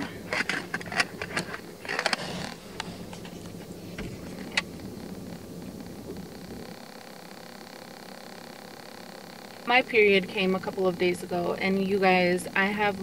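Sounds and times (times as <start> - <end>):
straw creaking in lid: 0.0 - 4.7
low steady hum: 0.0 - 13.0.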